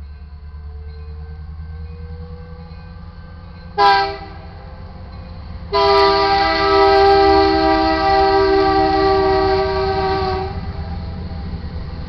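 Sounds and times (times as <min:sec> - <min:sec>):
diesel locomotives rumbling: 0:00.0 - 0:12.0
locomotive air horn blast: 0:03.8 - 0:04.6, 0:05.7 - 0:10.8.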